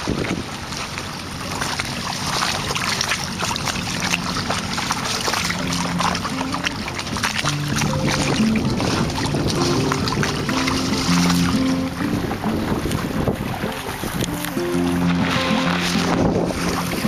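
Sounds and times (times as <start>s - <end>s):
water splashing along hull: 0.0s - 17.0s
faint music: 3.8s - 17.0s.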